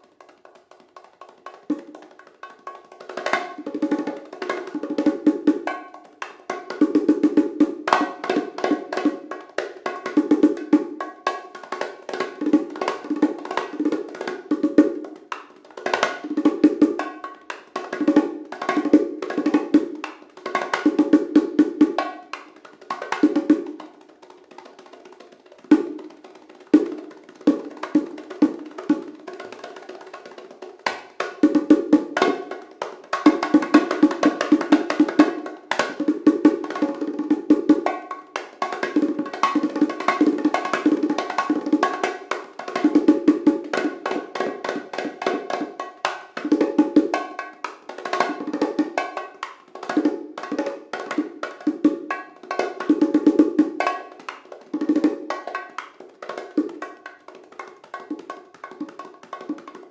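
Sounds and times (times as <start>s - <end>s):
bongos played by hand: 0.0s - 59.9s.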